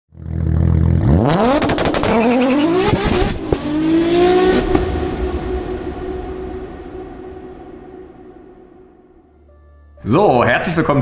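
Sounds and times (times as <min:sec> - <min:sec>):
car engine revving hard: 0:00.2 - 0:05.1.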